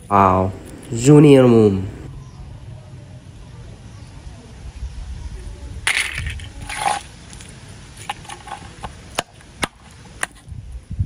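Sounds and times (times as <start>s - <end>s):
toy car scraping on concrete: 5.9s - 7.2s, 8.0s - 9.0s.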